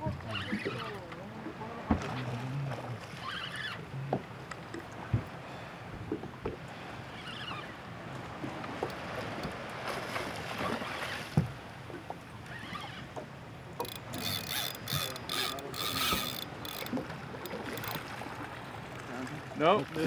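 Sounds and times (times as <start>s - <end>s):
water noise: 0.0s - 20.0s
wind: 0.0s - 20.0s
fishing reel ratcheting and whirring: 13.8s - 18.0s.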